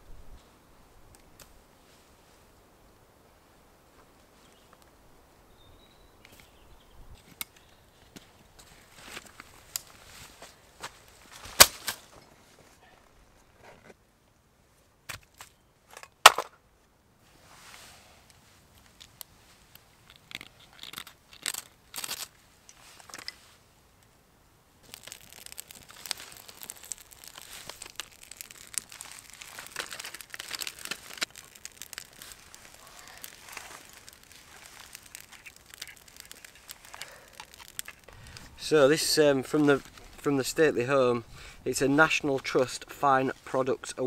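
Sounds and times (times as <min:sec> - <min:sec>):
crackle of wood fire: 0:00.0 - 0:44.0
crunching and handling noises: 0:18.3 - 0:23.6, 0:24.8 - 0:40.6.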